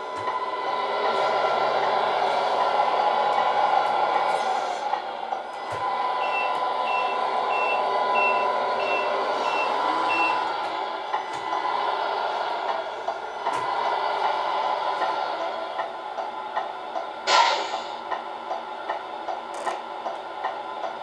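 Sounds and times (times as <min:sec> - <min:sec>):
simulated diesel engine: 0:00.0 - 0:21.0
reversing beeper beeps: 0:06.2 - 0:10.5.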